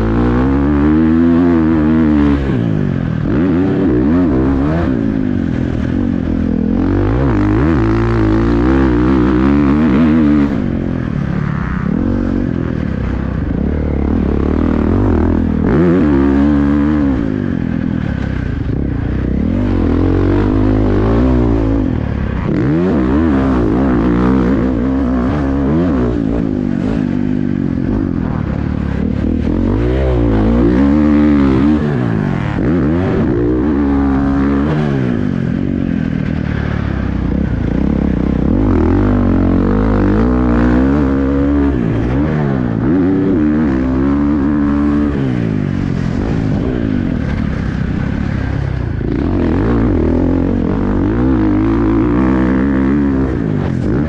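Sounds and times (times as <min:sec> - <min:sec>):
motocross bike engine revving: 0:00.0 - 0:54.0.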